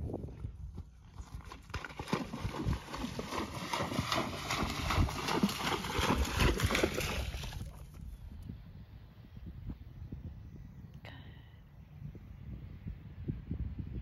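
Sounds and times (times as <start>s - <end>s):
horse hooves splashing in water: 0.7s - 8.2s.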